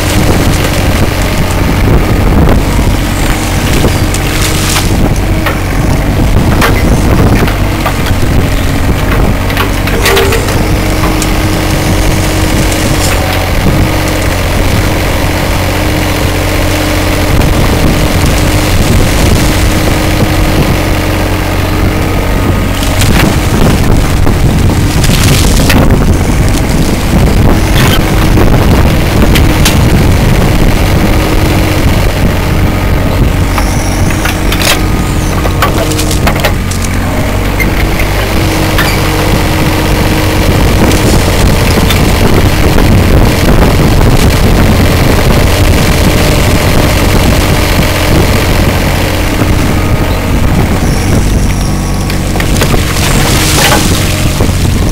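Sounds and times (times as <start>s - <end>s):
bucket scraping through mud and stones: 0.0s - 1.8s, 2.6s - 14.9s, 17.7s - 20.9s, 22.7s - 28.3s, 33.4s - 44.5s, 50.7s - 54.9s
excavator diesel engine running: 0.0s - 54.9s
twigs cracking: 3.1s - 5.3s, 35.6s - 37.0s, 52.0s - 54.6s.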